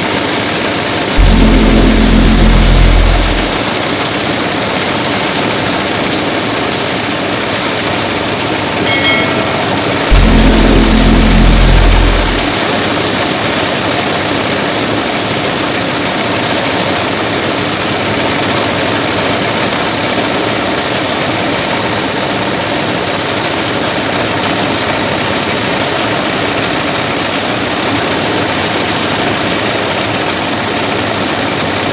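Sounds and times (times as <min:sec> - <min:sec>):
thresher machine running: 0:00.7 - 0:04.5, 0:06.3 - 0:13.6
loud low hum: 0:01.1 - 0:04.4, 0:08.7 - 0:13.6.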